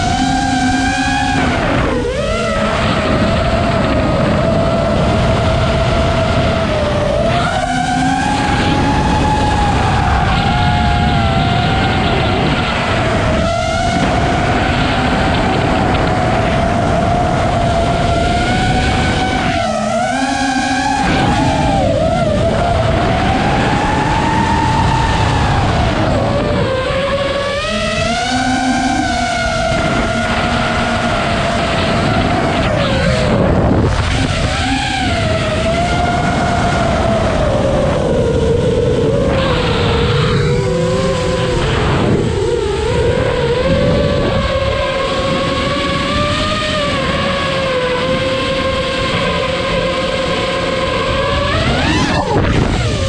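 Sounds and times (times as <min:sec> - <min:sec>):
quadcopter motors whining: 0:00.0 - 0:53.0
rushing air noise: 0:27.7 - 0:38.0, 0:51.1 - 0:53.0.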